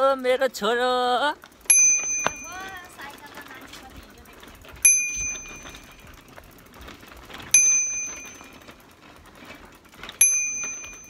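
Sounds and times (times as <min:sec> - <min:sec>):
small bell ringing: 0:01.7 - 0:03.2, 0:04.8 - 0:06.1, 0:07.5 - 0:08.7, 0:10.2 - 0:11.0.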